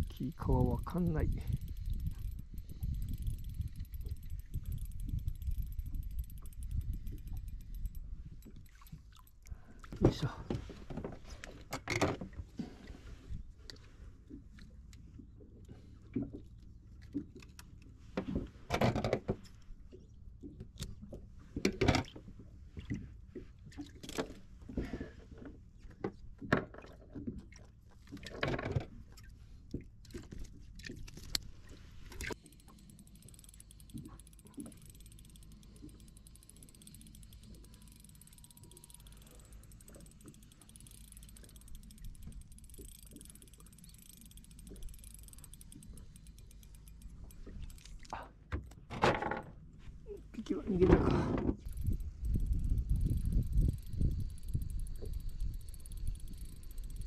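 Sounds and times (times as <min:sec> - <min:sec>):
low steady rumble: 0:00.0 - 0:10.7, 0:28.9 - 0:48.9, 0:49.5 - 0:57.0
fishing gear clicks and knocks: 0:00.0 - 0:23.0, 0:23.6 - 0:57.0.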